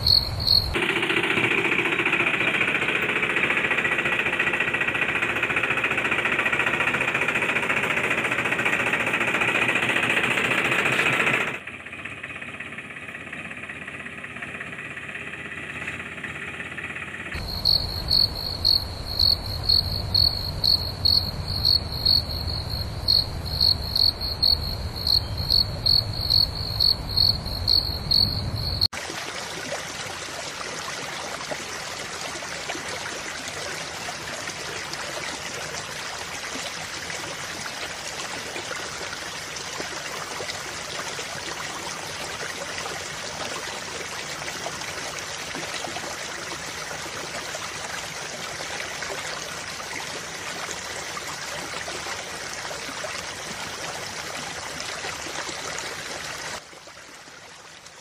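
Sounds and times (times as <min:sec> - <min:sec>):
insect chirping: 0:00.0 - 0:00.8, 0:16.8 - 0:28.9
water pouring into puddle: 0:29.0 - 0:58.0.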